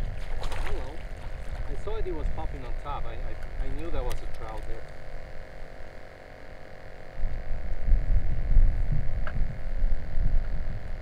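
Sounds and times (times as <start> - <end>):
steady hum: 0.0 - 11.0
wind buffeting microphone: 7.2 - 11.0.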